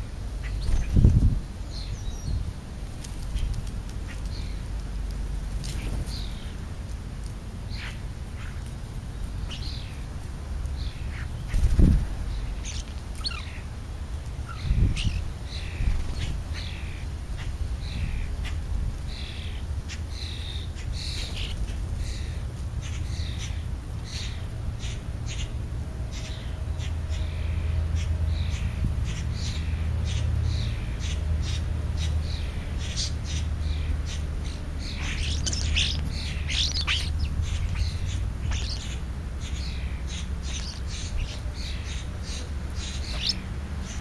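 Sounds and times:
steady low rumble: 0:00.0 - 0:44.0
short bird calls: 0:32.4 - 0:43.4.

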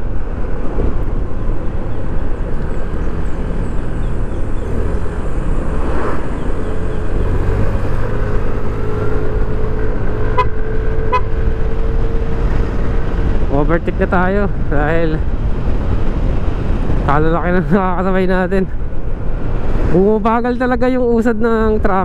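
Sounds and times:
scooter engine and road noise: 0:00.0 - 0:22.0.

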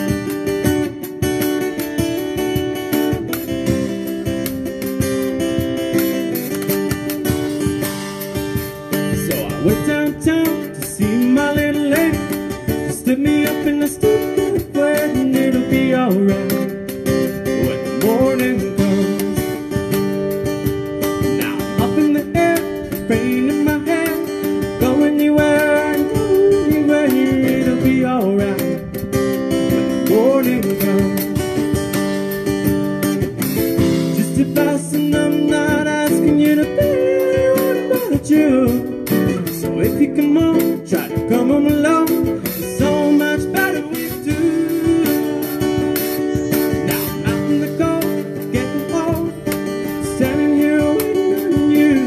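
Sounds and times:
cajon hand percussion: 0:00.0 - 0:52.0
strummed acoustic guitar: 0:00.0 - 0:52.0
man singing: 0:08.8 - 0:32.0, 0:33.8 - 0:52.0.

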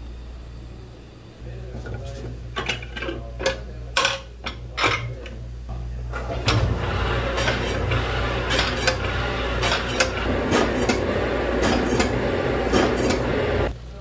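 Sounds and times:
dishes and utensils clattering: 0:01.8 - 0:05.4.

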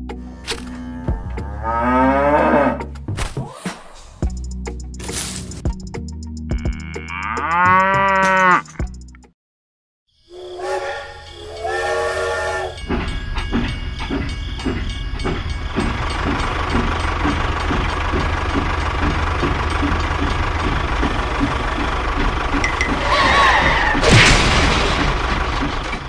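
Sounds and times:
steam locomotive whistle: 0:10.3 - 0:12.8
steam train chuffing: 0:10.4 - 0:23.9.

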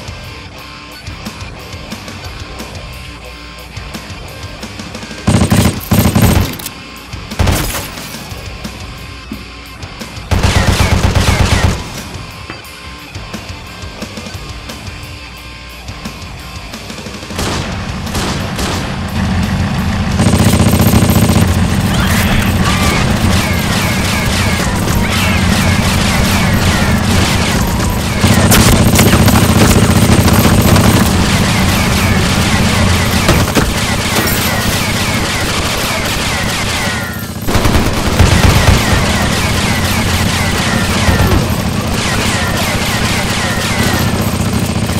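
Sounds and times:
automatic rifle fire: 0:05.3 - 0:06.7, 0:10.3 - 0:12.0, 0:17.4 - 0:19.0, 0:22.8 - 0:44.6.

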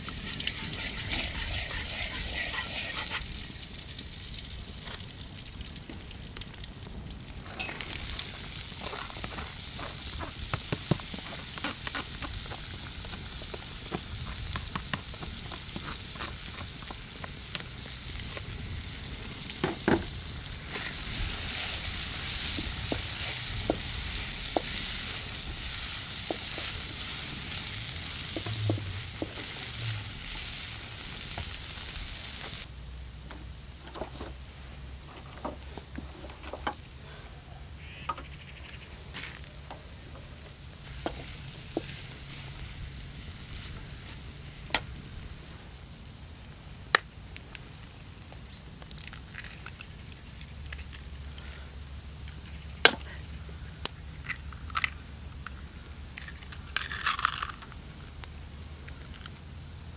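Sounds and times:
herbs sizzling in oil: 0:00.0 - 0:35.1, 0:40.3 - 0:54.2
wooden spatula scraping pan: 0:00.2 - 0:03.3.

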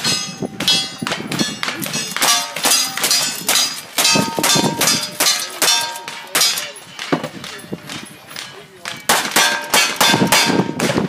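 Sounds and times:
steel target clanging: 0:00.0 - 0:11.0
gunshots: 0:09.1 - 0:11.0.

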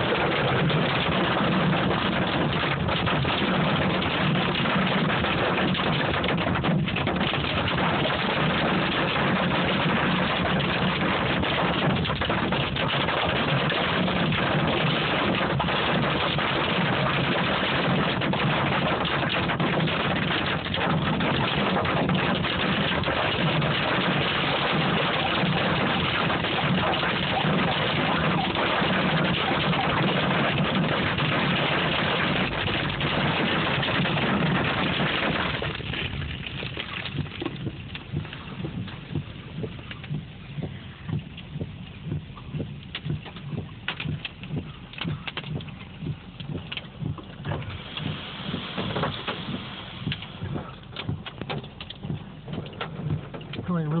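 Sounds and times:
hail and rain drumming on car roof: 0:00.0 - 0:54.0.

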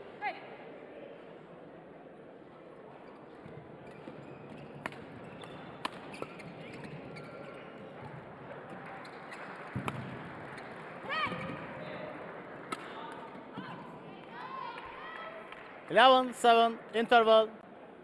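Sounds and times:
sports hall noise: 0:00.0 - 0:18.0
rackets striking shuttlecock: 0:03.9 - 0:13.5.

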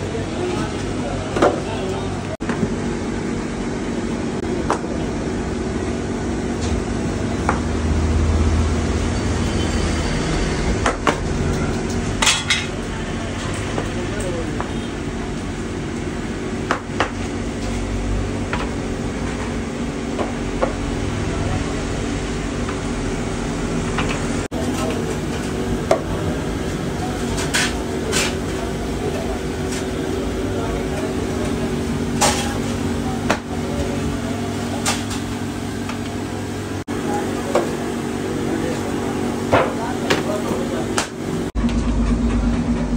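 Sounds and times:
low machine hum: 0:00.0 - 0:42.9.

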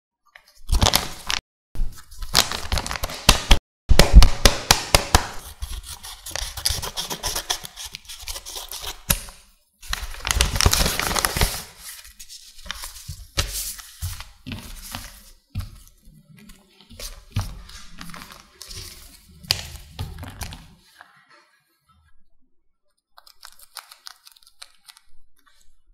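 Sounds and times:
paper rustling and crackling: 0:05.4 - 0:20.8.

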